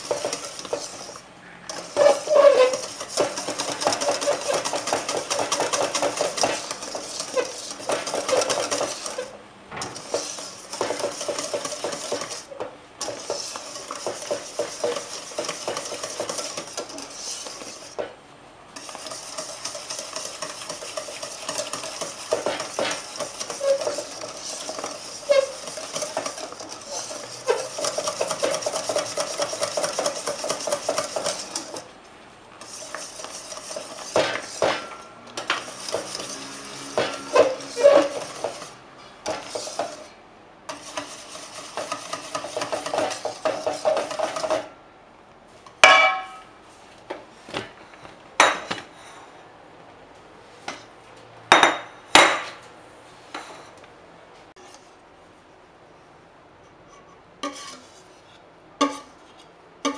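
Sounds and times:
whisk beating in metal bowl: 0:00.0 - 0:18.2, 0:18.8 - 0:31.9, 0:32.6 - 0:44.7.

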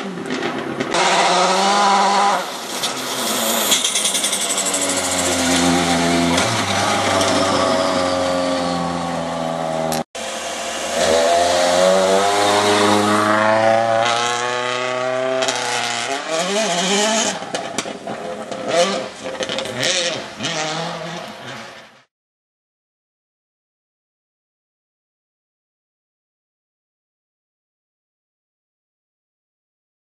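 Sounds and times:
rally car engine accelerating: 0:00.2 - 0:21.9.

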